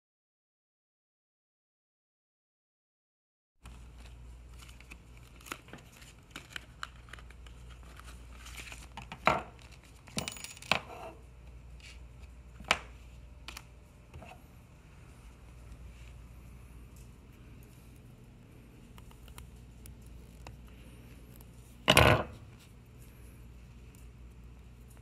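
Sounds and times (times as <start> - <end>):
plastic bag crinkling: 3.7 - 10.0.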